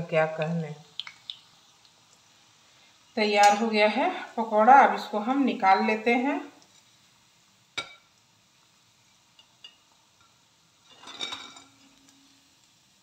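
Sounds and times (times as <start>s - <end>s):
ladle scraping in sizzling oil: 6.6s - 13.0s
steel ladle clinking on pan: 7.8s - 8.1s, 10.9s - 11.7s.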